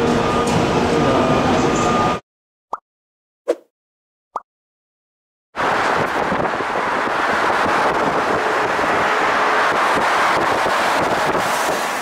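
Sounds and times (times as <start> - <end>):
road and wind noise: 5.6 - 12.0.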